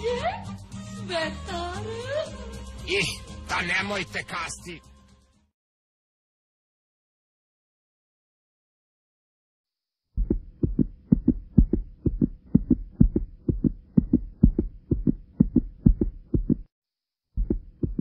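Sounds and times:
low heartbeat-like thumps: 10.2s - 16.7s, 17.4s - 18.0s.

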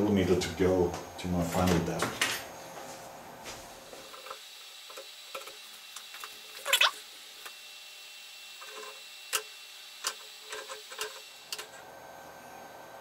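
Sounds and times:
metal parts squeaking: 6.6s - 6.9s.

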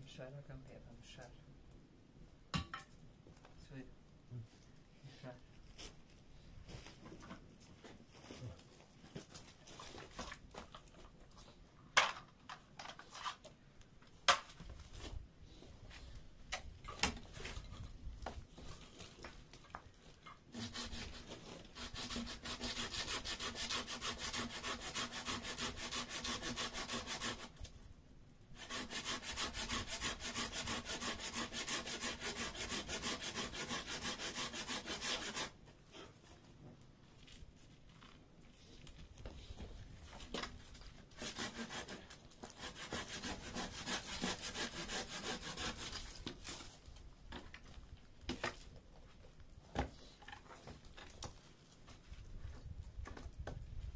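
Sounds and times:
hand saw cutting wood: 20.5s - 27.6s, 28.6s - 35.6s, 41.1s - 46.7s.

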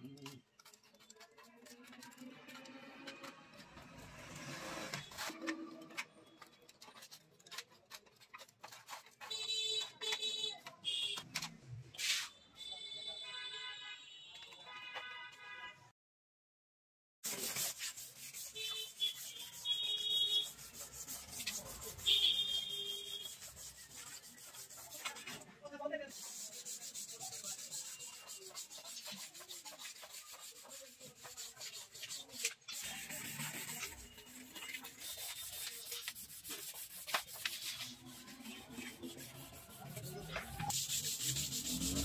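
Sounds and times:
tubing rubbing and scraping: 26.1s - 42.0s.

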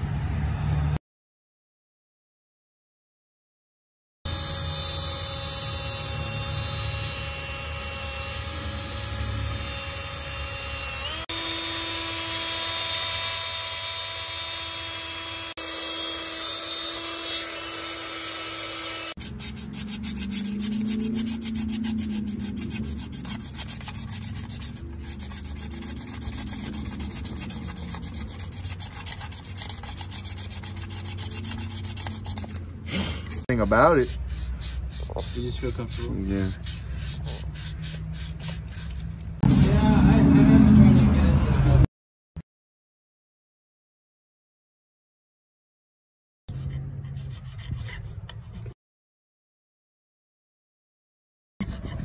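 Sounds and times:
tools scraping metal brake parts: 19.2s - 39.5s.

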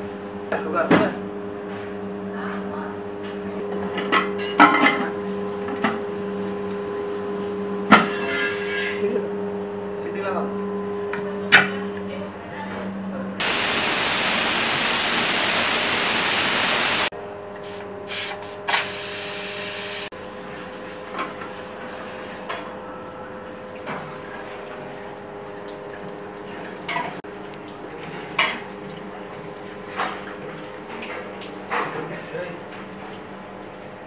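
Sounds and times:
steam hissing from pressure cooker: 13.4s - 20.1s.

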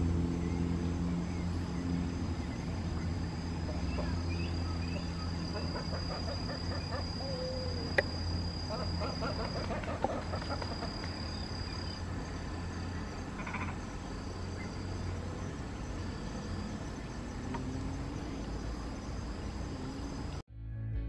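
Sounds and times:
faint animal calls: 3.0s - 12.1s, 12.8s - 19.2s.

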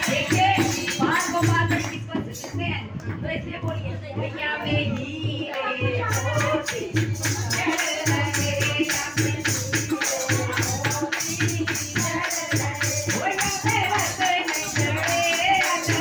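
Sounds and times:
jingling hand percussion: 0.0s - 16.0s
women singing into a microphone: 0.0s - 16.0s.

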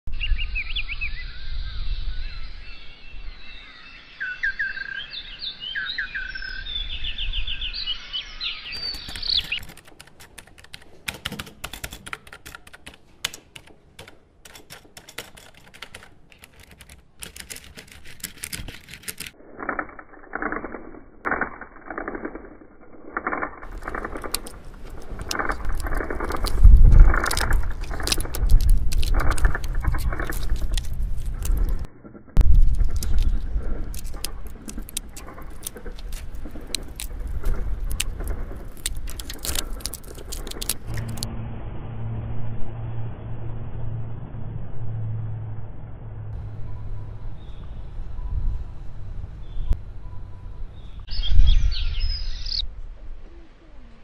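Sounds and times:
birds chirping and calling: 0.2s - 9.6s, 50.7s - 52.6s
sharp clicks and taps: 8.8s - 19.4s
low rumble: 20.9s - 54.0s.

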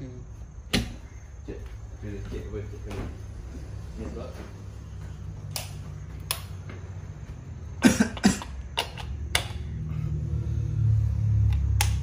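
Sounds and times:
man coughing: 7.8s - 8.6s
low hum: 9.0s - 12.0s.

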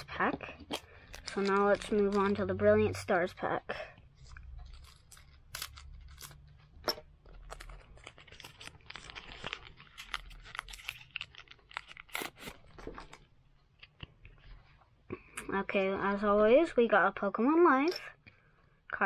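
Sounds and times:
foil wrapper crinkling: 0.6s - 2.5s, 4.2s - 13.2s.

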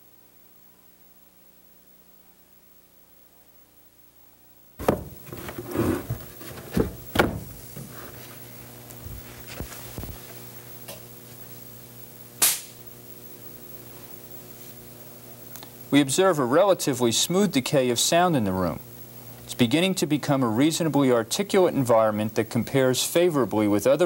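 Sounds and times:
steady low hum: 0.0s - 24.0s
sharp snap: 12.4s - 12.8s.

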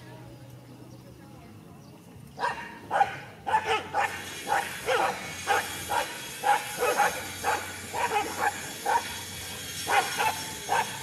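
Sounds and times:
dogs barking: 2.4s - 11.0s.

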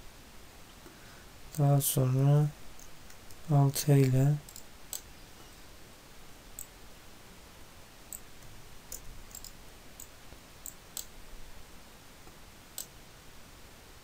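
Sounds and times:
mouse and keyboard clicks: 8.9s - 11.1s.

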